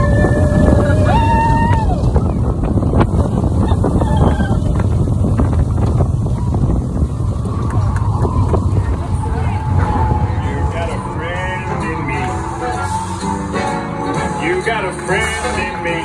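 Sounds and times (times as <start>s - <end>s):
wind buffeting microphone: 0.0s - 13.6s
roller coaster train rumbling: 0.0s - 16.0s
held high notes: 9.2s - 16.0s.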